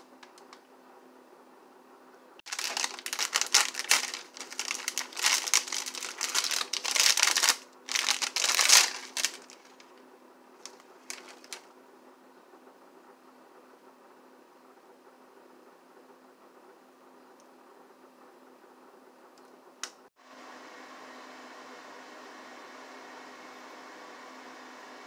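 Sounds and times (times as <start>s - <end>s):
plastic wrapper crinkling and tearing: 2.5s - 9.9s, 10.6s - 11.7s.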